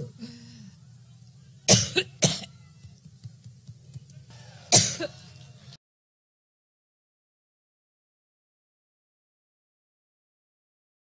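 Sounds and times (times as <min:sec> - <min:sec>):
woman coughing into microphone: 0:01.7 - 0:02.5, 0:04.8 - 0:05.2.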